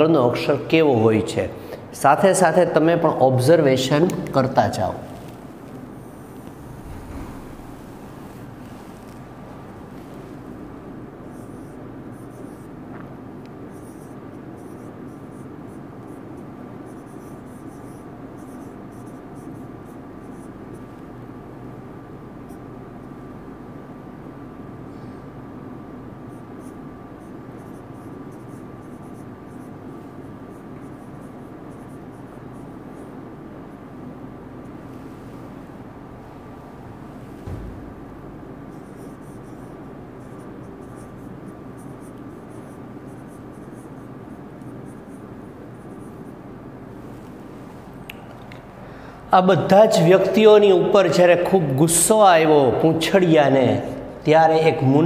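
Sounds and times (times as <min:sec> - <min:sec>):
steady background hum: 0:00.0 - 0:55.0
marker writing on whiteboard: 0:11.3 - 0:12.8, 0:13.5 - 0:21.0, 0:26.3 - 0:33.2, 0:38.6 - 0:46.4.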